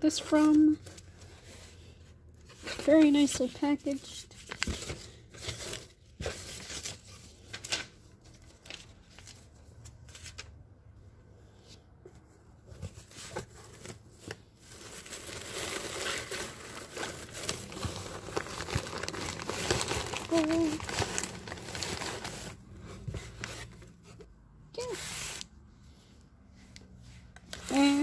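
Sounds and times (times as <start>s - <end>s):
shredded paper rustling in box: 13.0s - 23.7s.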